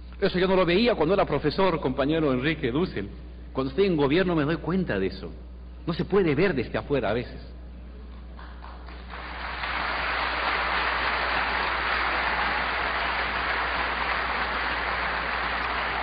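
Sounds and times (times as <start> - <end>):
audience applauding: 8.4 - 16.0.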